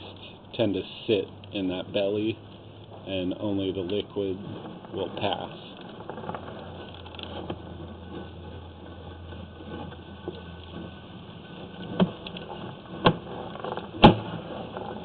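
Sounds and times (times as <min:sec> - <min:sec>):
steady low hum: 0:00.0 - 0:15.0
sharp knocks: 0:14.0 - 0:14.4.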